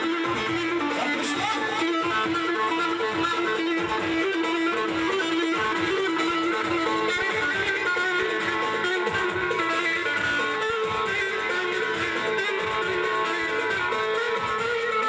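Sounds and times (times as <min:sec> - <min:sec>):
folk dance music: 0:00.0 - 0:15.0
plucked string melody: 0:00.0 - 0:15.0.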